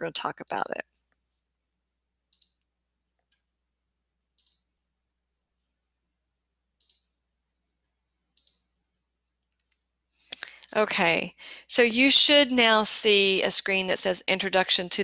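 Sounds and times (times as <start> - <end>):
computer mouse clicks: 2.3 - 2.6, 4.4 - 4.7, 6.8 - 7.1, 8.3 - 8.7.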